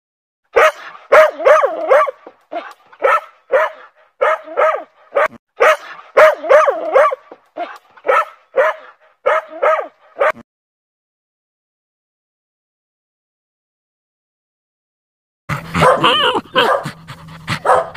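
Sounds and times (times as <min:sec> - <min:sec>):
dog barking in high-pitched yips: 0:00.5 - 0:10.4, 0:15.8 - 0:16.9, 0:17.6 - 0:17.9.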